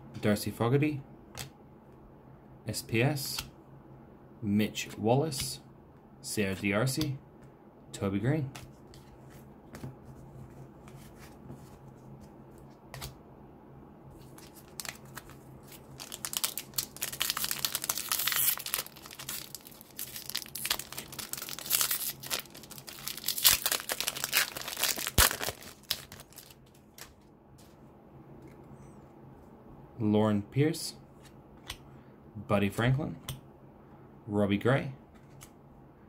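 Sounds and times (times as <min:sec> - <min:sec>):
foil wrapper crackling: 0:14.4 - 0:27.1.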